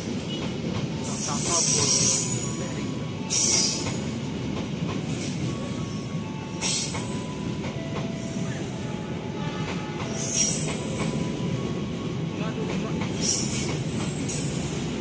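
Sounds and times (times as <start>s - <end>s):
train wheels rumbling on rail: 0.0s - 15.0s
high-pitched squealing hisses: 1.1s - 2.6s.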